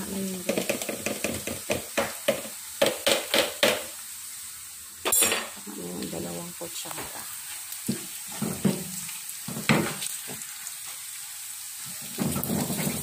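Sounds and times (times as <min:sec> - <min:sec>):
shrimp paste sizzling: 0:00.0 - 0:13.0
wooden spatula knocking in a pan: 0:00.4 - 0:03.9, 0:09.5 - 0:10.4.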